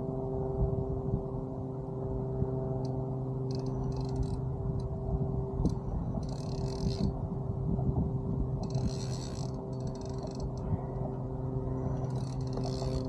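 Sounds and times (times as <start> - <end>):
motor humming: 3.4 - 13.0
fishing reel drag buzzing: 3.5 - 4.9, 5.6 - 7.2, 8.6 - 10.6, 11.8 - 13.0.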